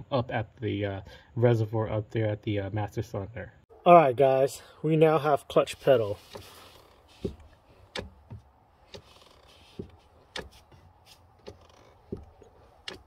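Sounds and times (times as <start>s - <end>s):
clutch pedal clicking and knocking: 7.2s - 13.0s.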